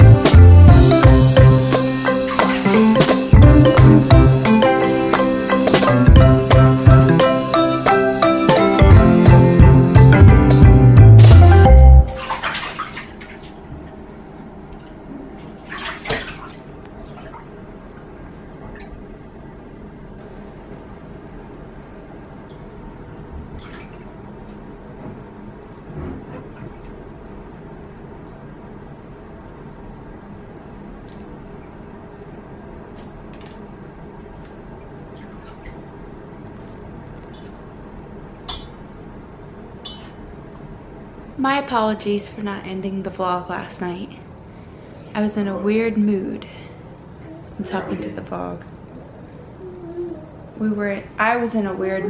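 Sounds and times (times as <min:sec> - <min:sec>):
water splashing in a bathtub: 0:02.3 - 0:03.4, 0:12.0 - 0:13.9, 0:14.6 - 0:19.2, 0:22.4 - 0:24.7, 0:26.4 - 0:27.3, 0:35.0 - 0:36.8.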